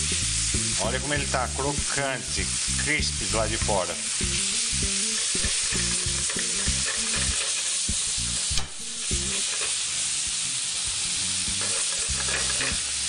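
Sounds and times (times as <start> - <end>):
food sizzling in a frying pan: 0.0 - 13.0
spoon stirring and scraping: 5.3 - 7.7.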